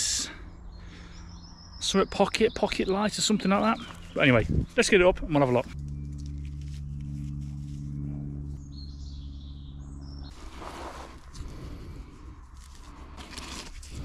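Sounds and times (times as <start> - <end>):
low hum: 0.0 - 14.0
strap rubbing on tree bark: 5.7 - 8.1, 10.3 - 14.0.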